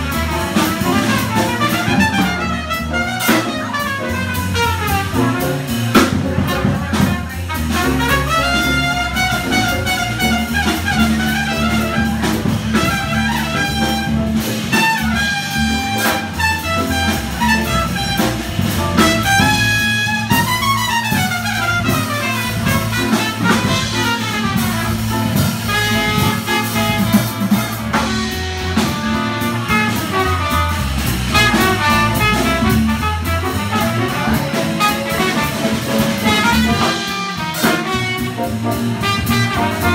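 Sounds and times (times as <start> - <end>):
alto saxophone: 0.0 - 39.9
jazz band playing swing: 0.0 - 39.9
trumpet: 0.0 - 39.9.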